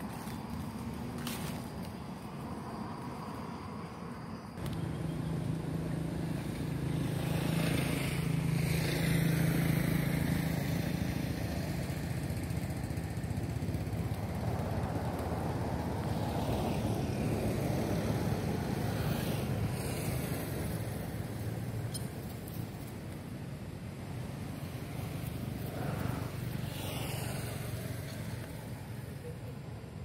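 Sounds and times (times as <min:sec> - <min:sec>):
engine running: 0:04.6 - 0:30.0.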